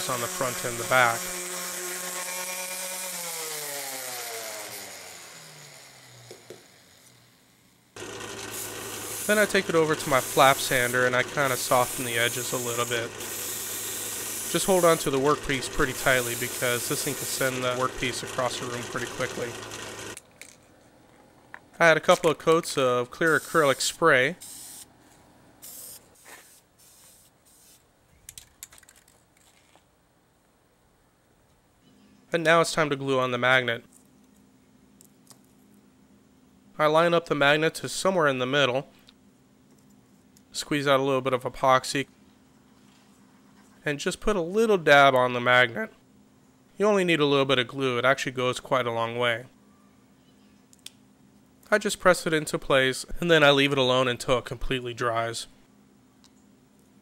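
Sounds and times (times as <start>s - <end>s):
sander motor spinning down: 0.0s - 20.2s
drill press humming: 8.0s - 20.2s
aerosol can spraying: 8.4s - 17.7s, 24.4s - 24.9s, 25.6s - 27.8s.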